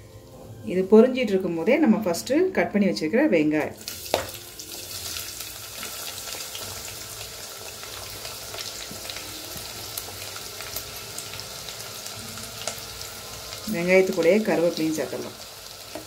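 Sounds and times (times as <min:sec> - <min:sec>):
onions sizzling in hot oil: 0:03.7 - 0:16.0.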